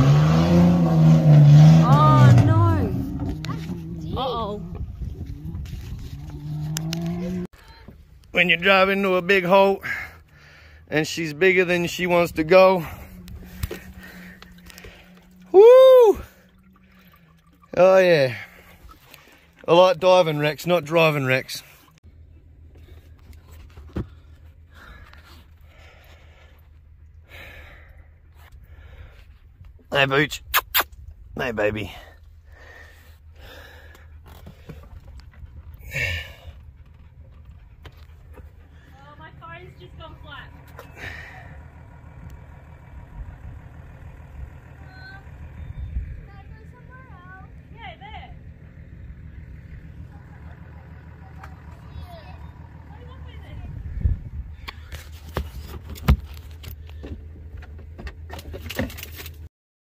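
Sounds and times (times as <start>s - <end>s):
low steady rumble: 0.0s - 59.4s.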